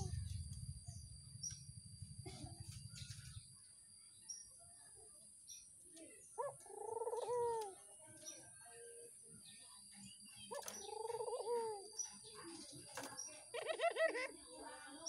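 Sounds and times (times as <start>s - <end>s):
doves cooing: 0.0s - 3.4s, 6.3s - 7.9s, 10.4s - 14.5s.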